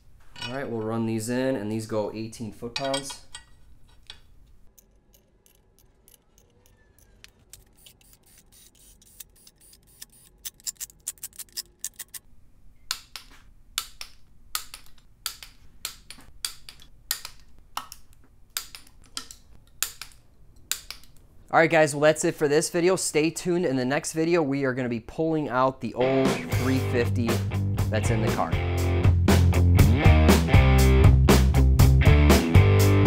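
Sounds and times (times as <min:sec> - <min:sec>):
socket ratchet clicking: 0:04.7 - 0:12.2.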